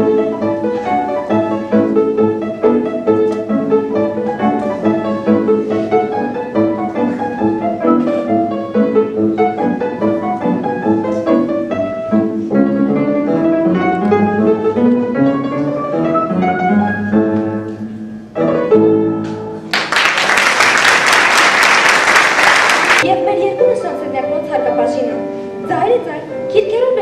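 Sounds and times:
solo upright piano: 0:00.0 - 0:19.9
audience applauding: 0:19.7 - 0:23.0.

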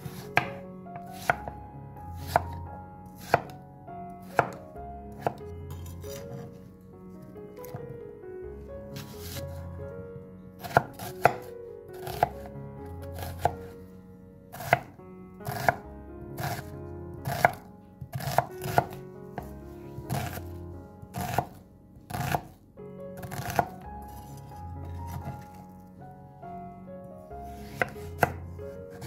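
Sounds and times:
knife chopping on wooden board: 0:00.0 - 0:01.5, 0:02.2 - 0:02.6, 0:03.2 - 0:03.6, 0:04.3 - 0:04.6, 0:05.2 - 0:06.5, 0:07.6 - 0:07.8, 0:09.0 - 0:09.6, 0:10.6 - 0:12.4, 0:13.1 - 0:13.6, 0:14.6 - 0:15.8, 0:16.4 - 0:20.4, 0:21.1 - 0:22.6, 0:23.2 - 0:24.2, 0:24.9 - 0:25.6, 0:27.6 - 0:29.0.

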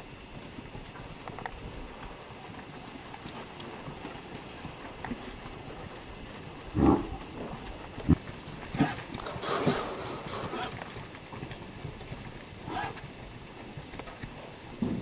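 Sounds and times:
calf hooves shuffling: 0:00.0 - 0:15.0
thumps: 0:08.8 - 0:10.8.

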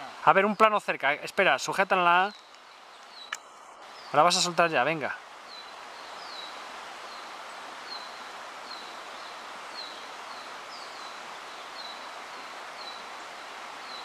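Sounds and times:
river water running over riffle: 0:00.0 - 0:14.0
bird chirping: 0:02.2 - 0:13.1.

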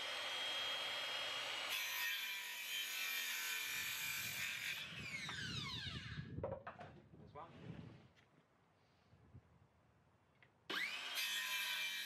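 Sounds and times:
saw cutting through wood: 0:00.0 - 0:06.2, 0:10.7 - 0:12.0.

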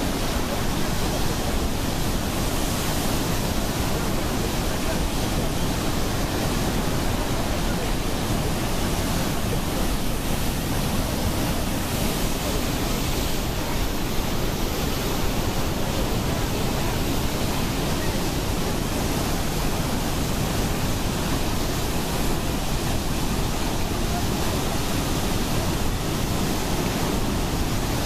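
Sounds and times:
water rushing through spillway: 0:00.0 - 0:28.0.

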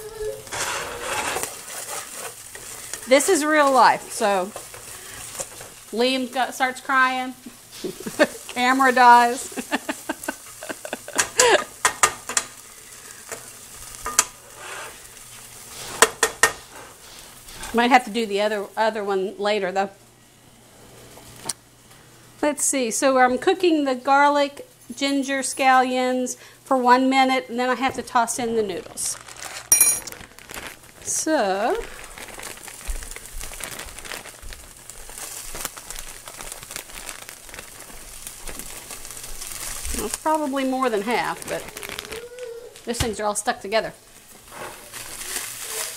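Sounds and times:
meat sizzling in a frying pan: 0:00.0 - 0:19.3, 0:29.0 - 0:45.9.

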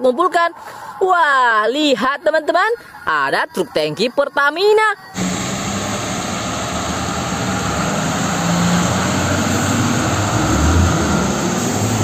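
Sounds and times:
truck engine rumbling past: 0:05.2 - 0:12.0
tyres hissing on wet road: 0:05.2 - 0:12.0.

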